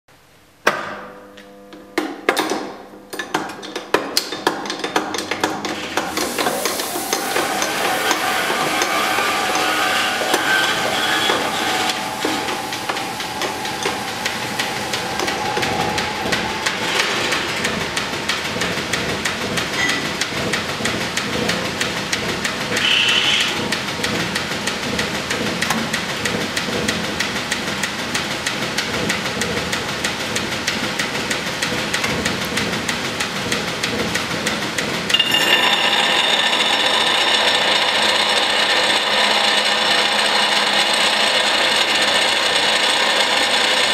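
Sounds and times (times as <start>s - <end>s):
metal grinding on wheel: 5.8s - 25.3s, 35.1s - 43.8s
pedestal grinder running: 5.8s - 25.3s, 35.1s - 43.9s.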